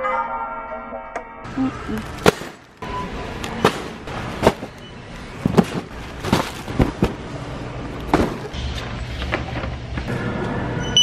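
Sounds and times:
shopping cart frame rattling: 3.5s - 7.5s
sharp knocks and thuds: 8.1s - 8.6s.

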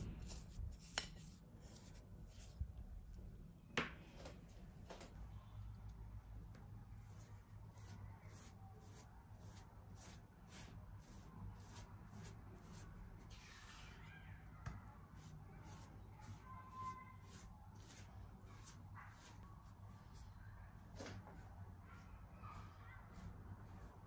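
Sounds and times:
spatula scraping dough: 7.1s - 14.0s, 15.1s - 20.2s.

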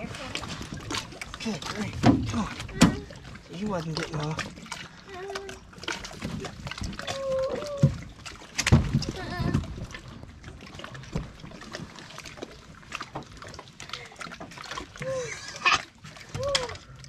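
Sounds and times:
fish thumping on boat deck: 2.0s - 3.1s.

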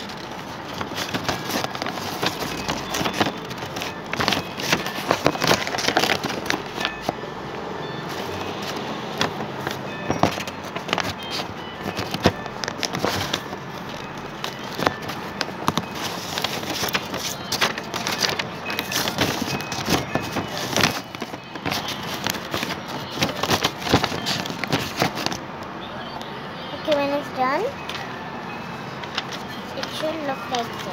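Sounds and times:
paper crinkling as folded: 0.0s - 7.2s, 8.1s - 25.4s.

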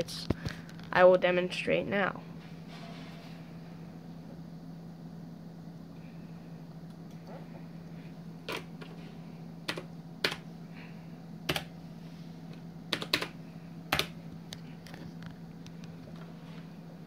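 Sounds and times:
low hum: 1.7s - 17.0s
keyboard keys clicking: 12.9s - 13.3s.

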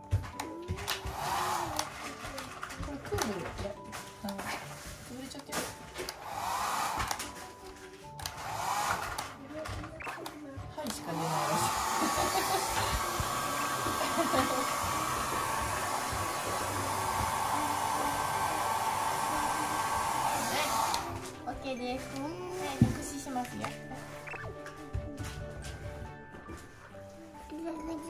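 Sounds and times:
hair dryer blowing: 0.7s - 2.3s, 5.9s - 7.5s, 8.2s - 9.4s, 10.9s - 21.4s.

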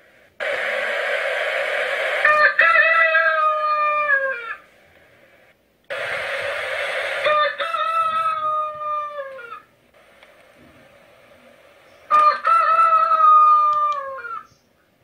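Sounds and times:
rooster crowing: 2.2s - 4.6s, 7.2s - 9.7s, 12.1s - 14.5s.

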